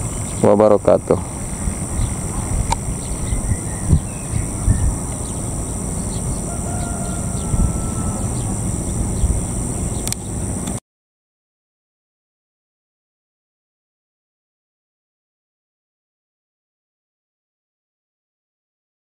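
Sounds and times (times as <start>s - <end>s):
insects droning: 0.0s - 10.8s
low rumbling noise: 0.0s - 10.8s
faint bird chirps: 3.0s - 10.4s.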